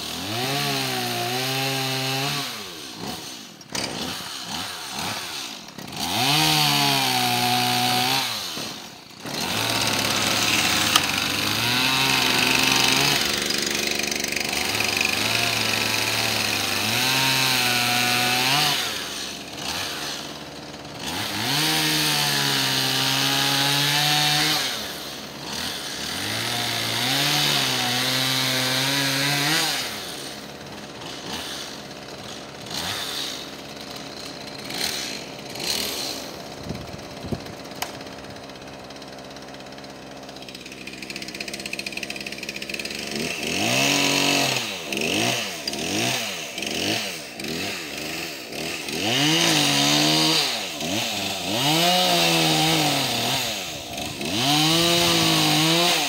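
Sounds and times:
chainsaw revving and cutting: 0.0s - 56.0s.

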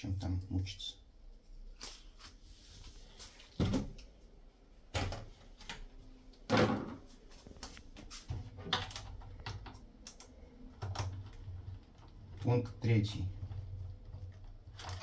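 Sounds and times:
plastic bin knocking and clunking: 6.5s - 7.1s.

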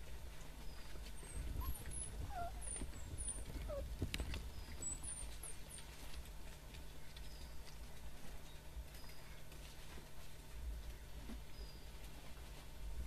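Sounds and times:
low steady rumble: 0.0s - 13.0s
puppies squeaking: 0.6s - 6.1s.

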